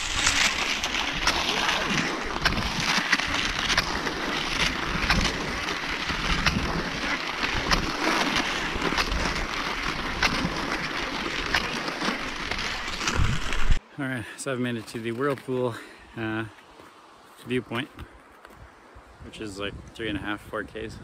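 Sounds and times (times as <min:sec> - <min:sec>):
skis sliding on snow: 0:00.0 - 0:13.8
wind rumbling on microphone: 0:00.0 - 0:13.8, 0:18.0 - 0:21.0.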